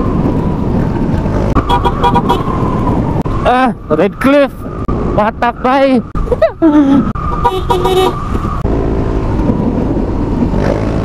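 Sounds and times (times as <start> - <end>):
wind on microphone: 0.0 - 5.2, 6.0 - 11.0
horn beeping: 1.6 - 2.5, 7.4 - 8.3.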